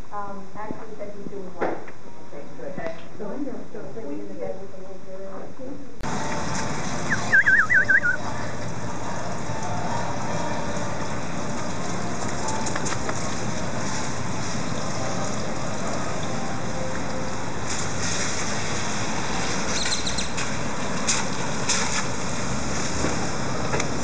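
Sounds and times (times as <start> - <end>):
rushing outdoor background noise: 6.0 - 24.0.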